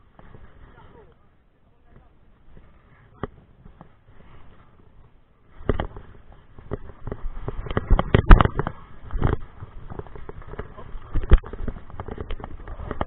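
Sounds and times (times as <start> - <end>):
bike rattling over rocks: 4.8 - 13.0.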